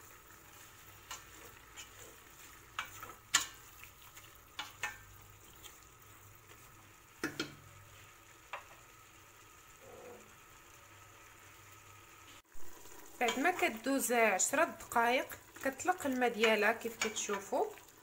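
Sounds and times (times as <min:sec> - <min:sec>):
faint sizzle: 0:00.0 - 0:18.0
spoon knocking and scraping pot: 0:00.8 - 0:05.8, 0:07.2 - 0:07.7, 0:16.4 - 0:17.5.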